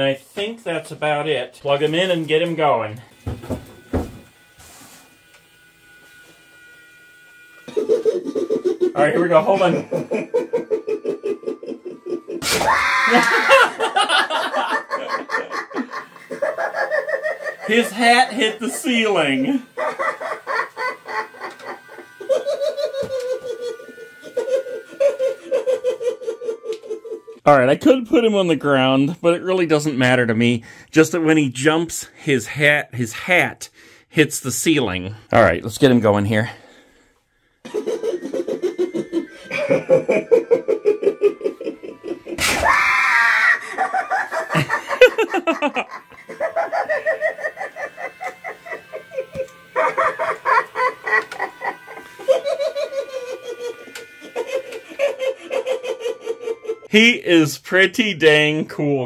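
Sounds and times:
recorded choppy laughing: 0:07.7 - 0:18.0, 0:19.5 - 0:27.4, 0:37.6 - 0:56.9
high fast-pulsing giggle: 0:07.7 - 0:18.2, 0:19.4 - 0:27.4, 0:37.7 - 0:56.9.

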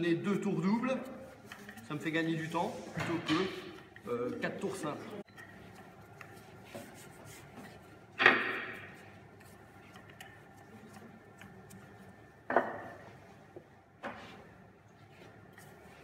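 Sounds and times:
loud rolling pin strokes: 0:05.5 - 0:16.0
rolling pin rubbing on dough: 0:05.5 - 0:16.0.

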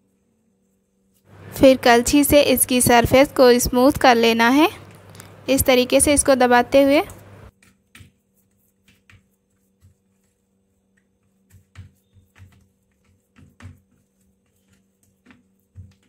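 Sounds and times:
low steady hum: 0:00.8 - 0:07.5.

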